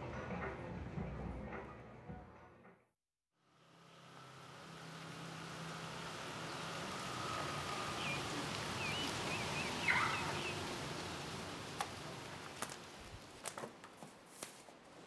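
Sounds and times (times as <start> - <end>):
distant traffic hiss: 3.4 - 14.3
bird chirps: 7.7 - 10.6.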